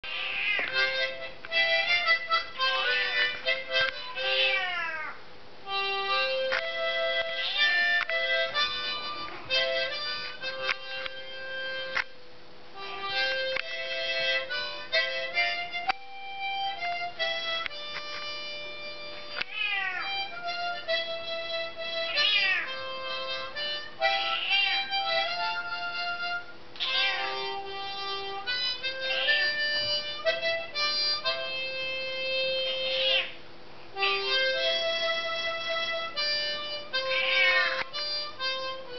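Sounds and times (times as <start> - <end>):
cat meowing: 0.0 - 1.0, 2.6 - 5.2, 7.4 - 8.1, 19.4 - 20.5, 22.0 - 22.9, 24.1 - 25.0, 26.8 - 27.7, 28.9 - 29.6, 32.9 - 33.4, 37.0 - 37.9
harmonica playing: 0.0 - 5.0, 5.6 - 38.9.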